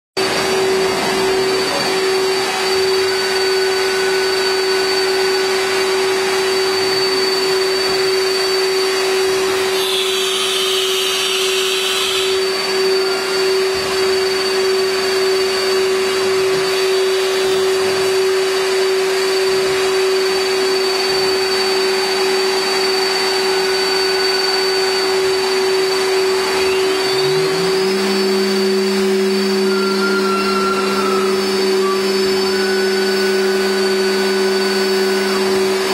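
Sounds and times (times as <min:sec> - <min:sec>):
router spindle high whine: 0:00.2 - 0:35.9
lower motor hum: 0:12.0 - 0:35.9.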